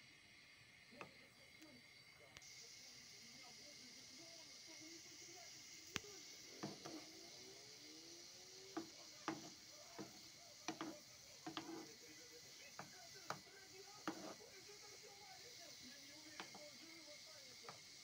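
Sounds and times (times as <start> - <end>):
metal spoon tapping iron pan: 8.8 - 11.9.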